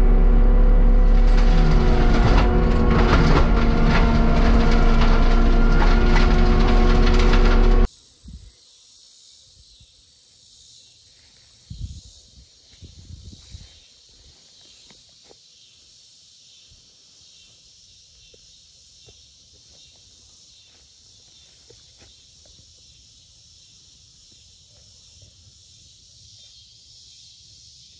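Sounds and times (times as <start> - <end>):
low thumps: 0.0 - 7.9
insects chirring: 7.8 - 27.9.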